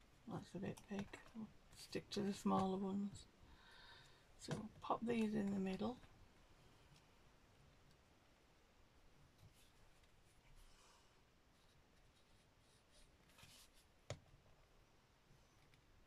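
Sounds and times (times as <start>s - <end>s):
faint paper rustling: 9.3s - 14.0s.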